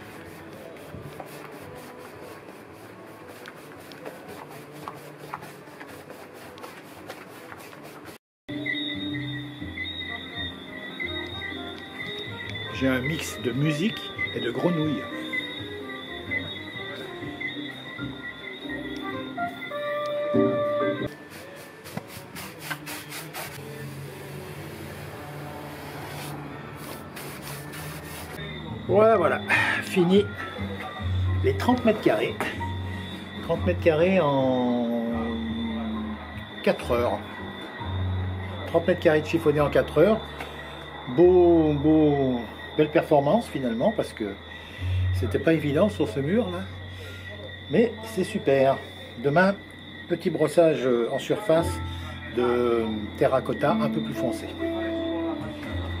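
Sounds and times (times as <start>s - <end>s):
paintbrush scrubbing a wall: 0.0s - 8.2s, 21.1s - 28.4s.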